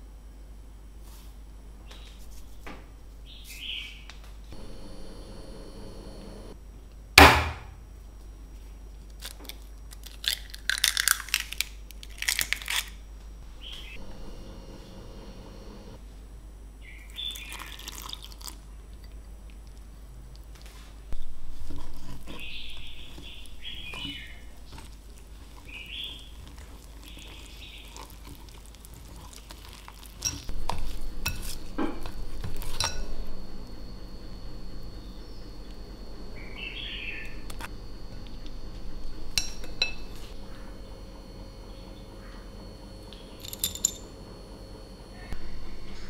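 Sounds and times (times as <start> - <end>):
eggshell crackling and snapping: 9.1 - 13.0, 21.8 - 30.9
whisk stirring batter: 21.3 - 33.1
whisk clinking against glass: 32.4 - 33.2, 39.3 - 40.2.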